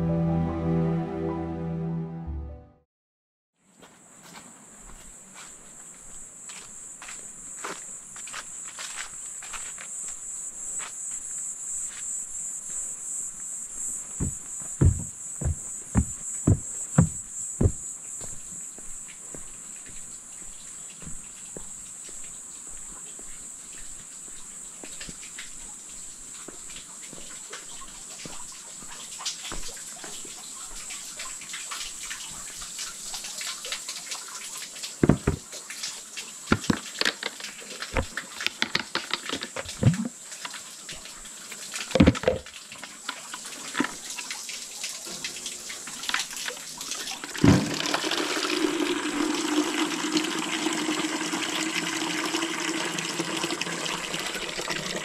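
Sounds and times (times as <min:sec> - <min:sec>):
water running into a container: 0:29.4 - 0:55.0.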